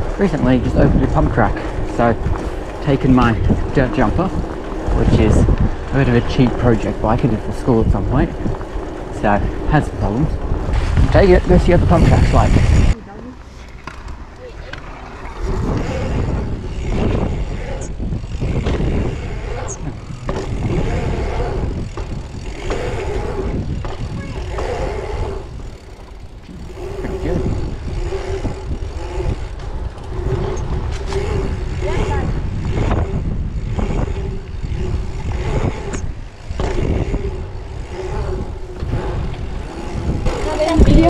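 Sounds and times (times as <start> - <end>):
bike tyre rumble on asphalt: 0.0 - 41.0
wind buffeting microphone: 0.0 - 41.0
bike knocks: 20.1 - 21.0.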